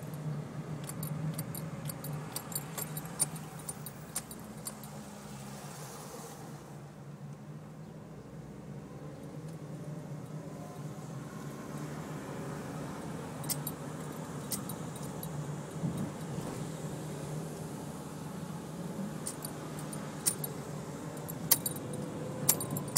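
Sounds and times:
light metallic jingles: 0.0 - 5.1, 13.0 - 16.4, 19.2 - 22.9
car engine and tyres hum: 0.0 - 22.9.

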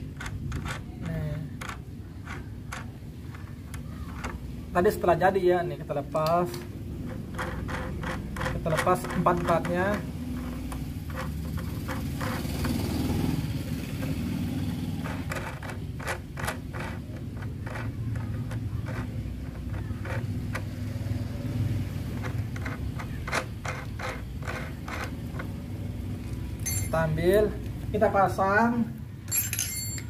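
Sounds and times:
small plastic clicks: 0.1 - 4.4.

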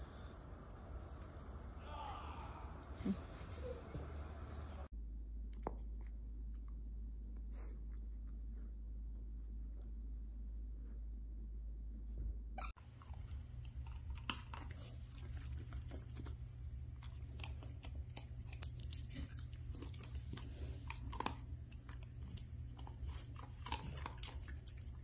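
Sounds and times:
low steady hum: 0.0 - 25.0
dog crunching dry treats: 12.9 - 25.0.

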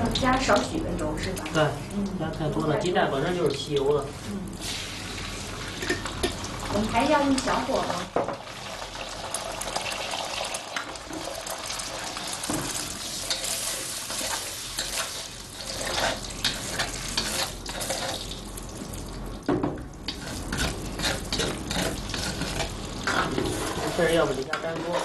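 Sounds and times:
eggs sizzling in hot oil: 0.0 - 25.0
metal ladle scraping a wok: 13.1 - 18.2, 20.1 - 25.0.

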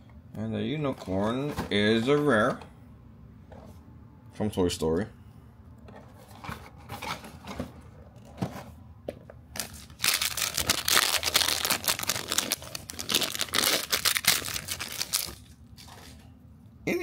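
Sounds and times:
plastic wrapper crinkling and tearing: 9.6 - 15.5.

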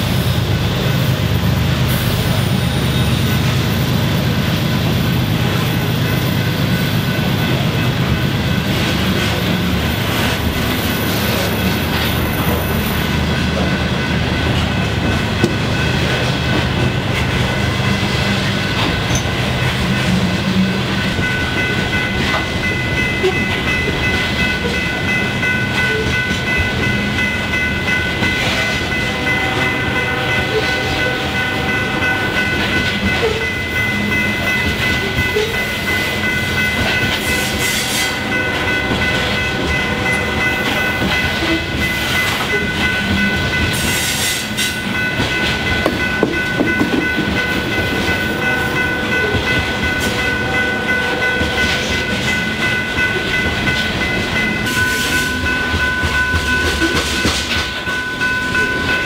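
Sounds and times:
train wheels rumbling on rail: 0.0 - 59.0
high ringing tones: 2.6 - 59.0.

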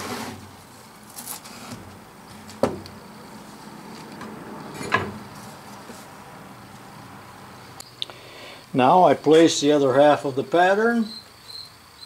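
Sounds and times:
sharp knocks on wood: 2.6 - 2.8.

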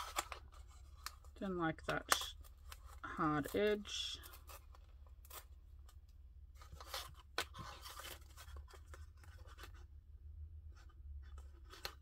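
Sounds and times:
plastic sheet and paper rustling: 0.0 - 9.9.

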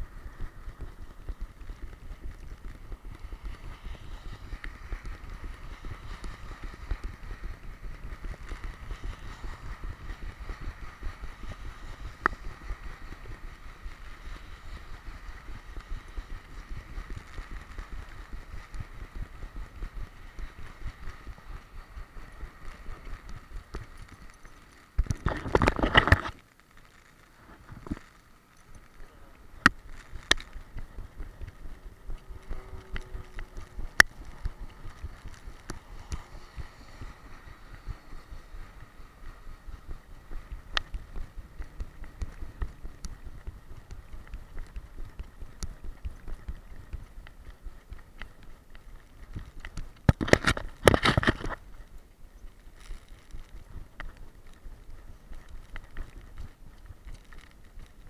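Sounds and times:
camera bumps from running dog: 22.5 - 26.4, 44.1 - 51.9.

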